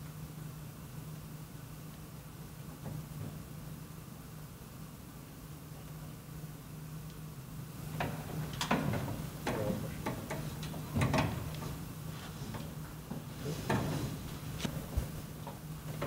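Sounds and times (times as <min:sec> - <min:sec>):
knocks and rattles of cables in metal box: 0:08.0 - 0:11.8.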